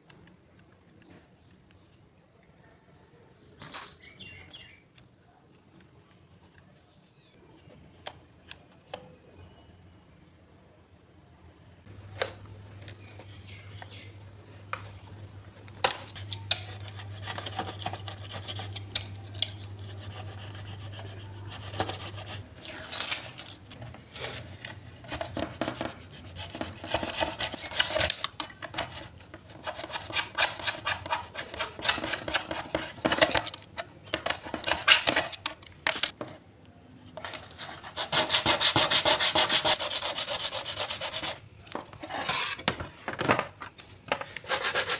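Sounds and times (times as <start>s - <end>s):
knife blade scraping glue on plastic: 25.1s - 33.5s
fast steady rubbing: 37.9s - 41.4s, 44.5s - 44.9s.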